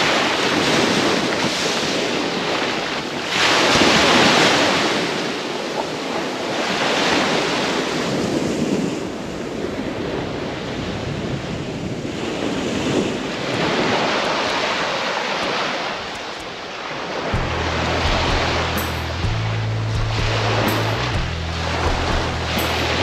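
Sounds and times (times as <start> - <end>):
surf breaking on beach: 0.0 - 23.0
wind buffeting microphone: 0.0 - 23.0.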